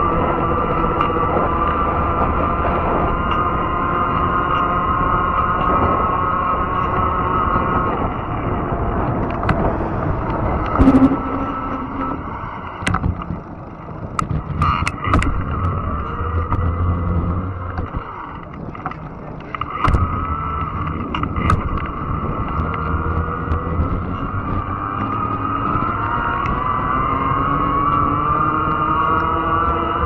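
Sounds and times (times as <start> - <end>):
electric motor whine: 0.0 - 30.0
tyre and wind rumble: 0.0 - 30.0
sharp clicks and knocks: 9.1 - 11.2, 12.6 - 26.6.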